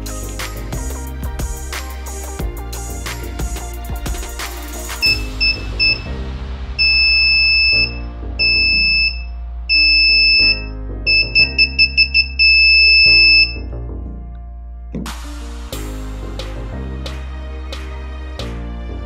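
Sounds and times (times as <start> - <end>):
background music: 0.0 - 19.0
electronic buzzer beeping: 5.0 - 6.1, 6.8 - 13.6.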